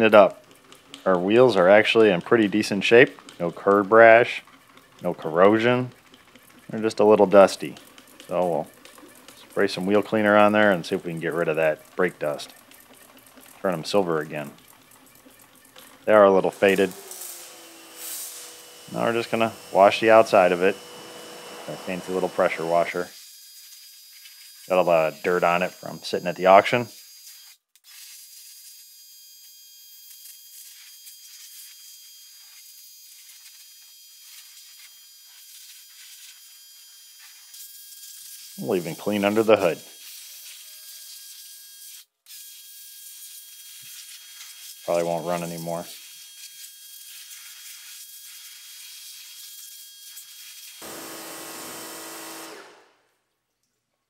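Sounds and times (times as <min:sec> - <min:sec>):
pressure washer spray hiss: 0:16.5 - 0:23.1.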